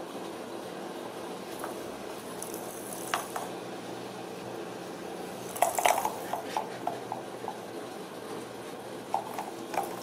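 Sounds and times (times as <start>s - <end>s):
ball knocking inside toy track: 5.5s - 7.6s.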